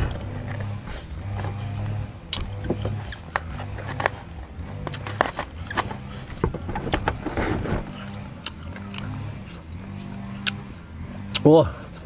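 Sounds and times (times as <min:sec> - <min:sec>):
bamboo basket being handled: 0:00.0 - 0:09.0
chewing: 0:00.0 - 0:12.0
distant engine drone: 0:00.0 - 0:12.0.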